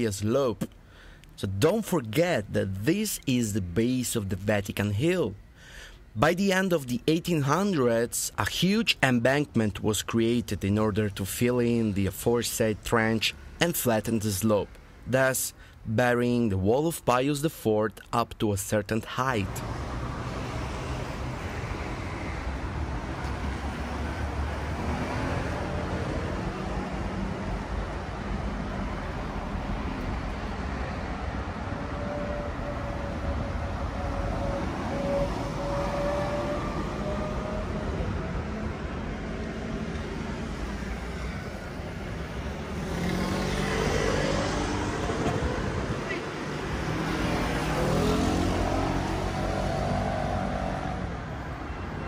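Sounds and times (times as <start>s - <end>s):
vehicle passing close: 19.5s - 51.4s
cars and scooters rumbling past: 19.5s - 52.0s.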